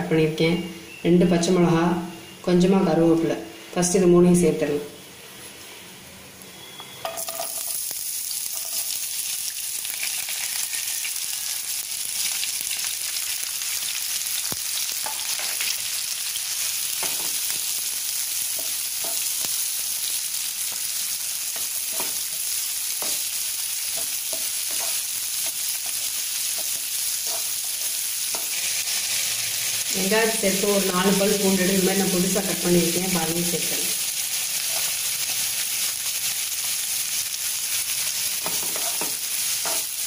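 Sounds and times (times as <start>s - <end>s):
vegetables sizzling in hot oil: 6.4s - 40.0s
spatula scraping a pan: 24.0s - 29.3s, 38.4s - 39.9s.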